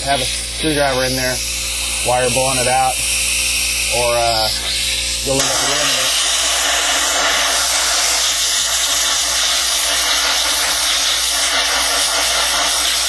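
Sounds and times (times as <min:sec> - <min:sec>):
compressed air hissing: 0:00.0 - 0:13.0.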